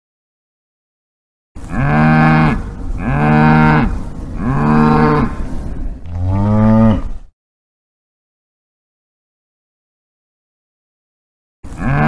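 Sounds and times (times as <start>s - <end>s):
cow mooing: 1.6s - 7.2s, 11.7s - 12.0s.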